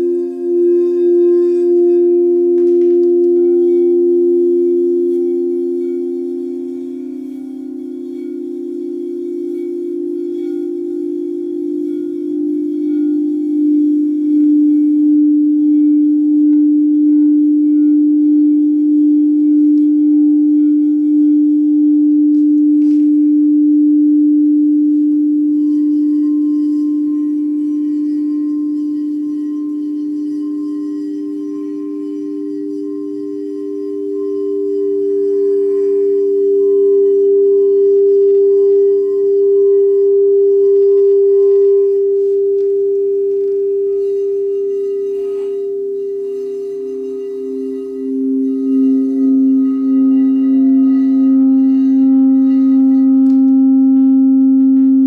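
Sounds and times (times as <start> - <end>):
crystal singing bowls ringing: 0.0 - 55.0
higher singing bowl: 0.0 - 55.0.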